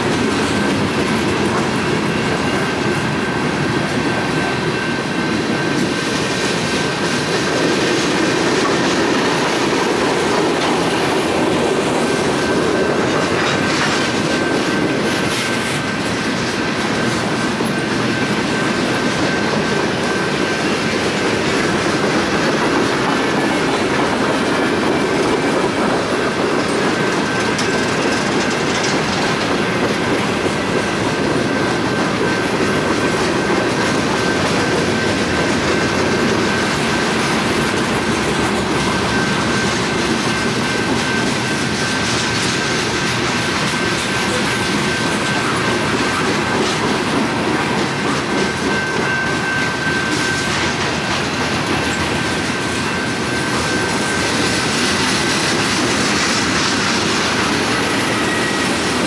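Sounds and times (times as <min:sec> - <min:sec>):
train wheels clacking on rails: 0:00.0 - 0:59.0
high-pitched wheel squeal: 0:47.8 - 0:50.8, 0:56.0 - 0:59.0.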